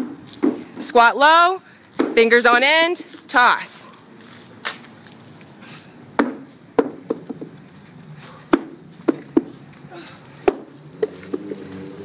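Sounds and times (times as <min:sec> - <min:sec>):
rubber tube knocking on asphalt: 0:06.2 - 0:07.5, 0:08.5 - 0:09.5.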